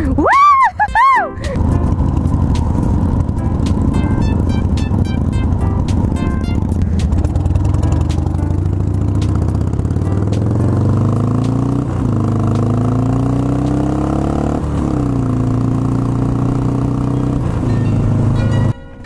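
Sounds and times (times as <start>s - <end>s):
motorcycle engine accelerating: 0.9s - 18.8s.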